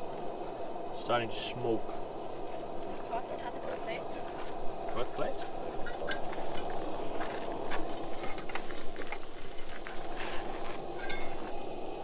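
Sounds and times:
gas burners hissing: 0.0s - 12.0s.

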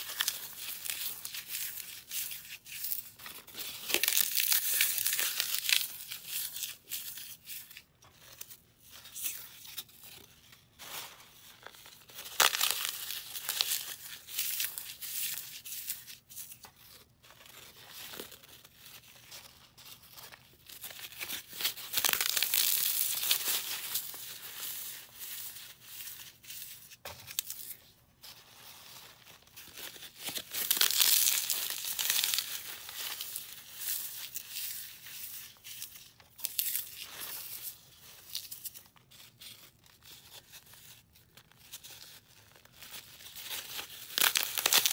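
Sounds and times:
foam crunching by hand: 12.1s - 16.0s, 20.7s - 25.0s, 29.7s - 34.5s, 43.4s - 44.9s.

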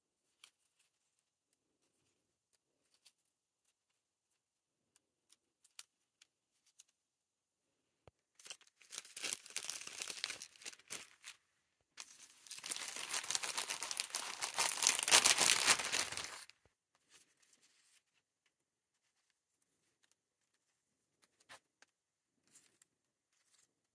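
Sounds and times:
cellophane crinkling: 8.4s - 11.4s, 12.0s - 16.5s.

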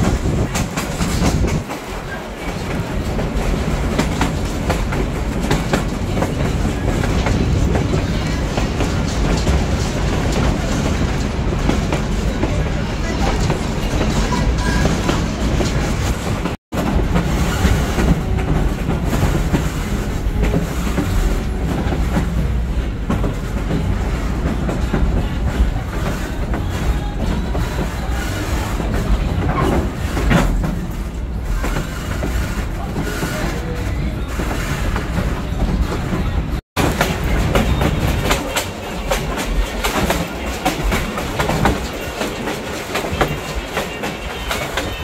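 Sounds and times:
train wheels clickety-clack: 0.0s - 45.0s.

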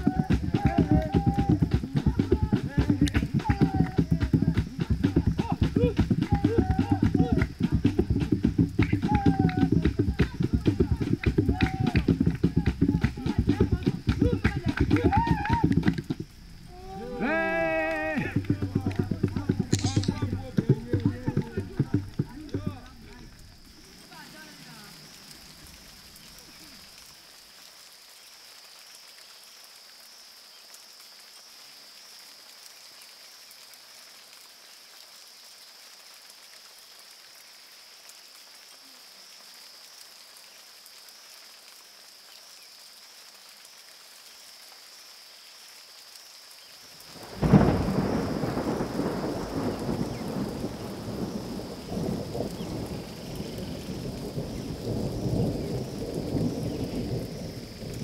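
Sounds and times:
thunderclap with deep rumble: 0.0s - 23.8s, 47.2s - 58.0s
faint steady rain: 0.0s - 58.0s.

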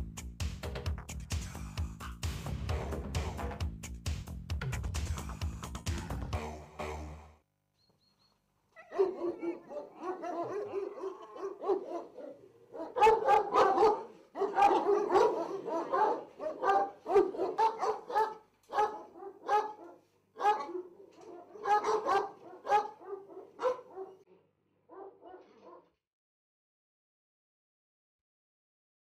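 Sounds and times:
dogs barking: 8.8s - 24.3s, 24.9s - 25.9s.

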